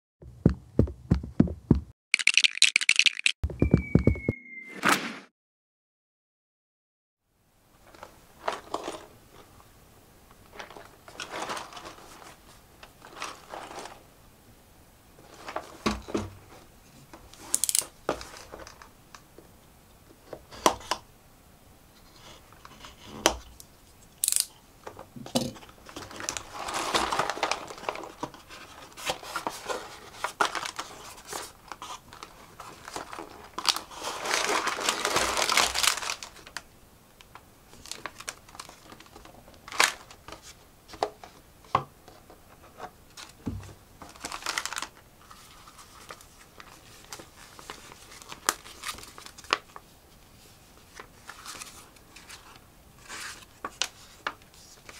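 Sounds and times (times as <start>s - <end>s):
plastic packaging crinkling and tearing: 10.5s - 14.0s, 25.8s - 36.7s, 37.7s - 40.6s, 44.0s - 49.8s.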